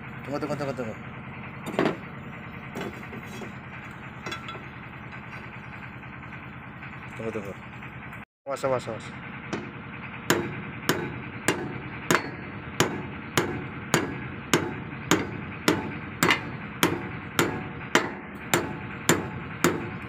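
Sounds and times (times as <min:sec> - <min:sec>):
hammer striking steel: 0:04.2 - 0:05.4, 0:09.5 - 0:20.0.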